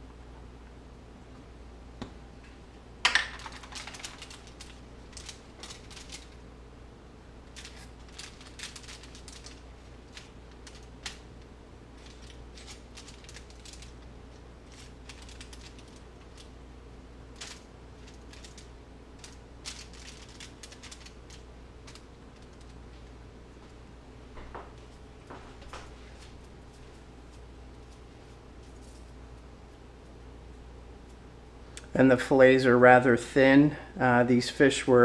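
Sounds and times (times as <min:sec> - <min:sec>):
foil and paper towel crinkling: 0:03.2 - 0:06.4, 0:07.4 - 0:11.4, 0:12.0 - 0:16.6, 0:17.3 - 0:23.1.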